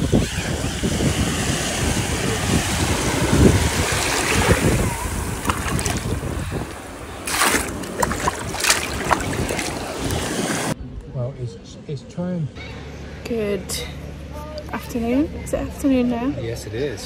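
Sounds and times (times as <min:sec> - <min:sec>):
surf washing over sand: 0:00.0 - 0:10.8
wind rumbling on microphone: 0:00.0 - 0:11.1
sharp splashes: 0:00.9 - 0:10.8.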